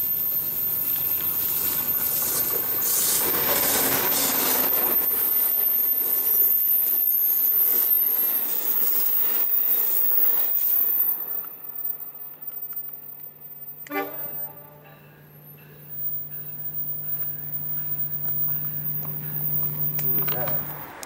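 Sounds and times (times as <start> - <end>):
diesel locomotive passing: 0.0 - 21.0
train wheels clicking on rails: 0.0 - 21.0.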